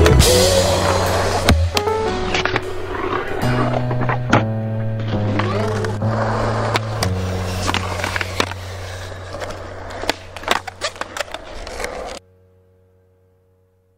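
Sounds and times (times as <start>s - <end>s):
skateboard wheels rolling on concrete: 0.0s - 12.2s
skateboard clacking: 5.2s - 12.2s.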